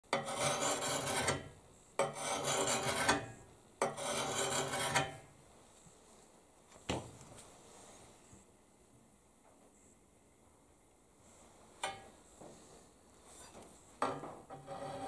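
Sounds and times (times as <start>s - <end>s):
hand file on steel: 0.1s - 5.2s, 14.5s - 15.0s.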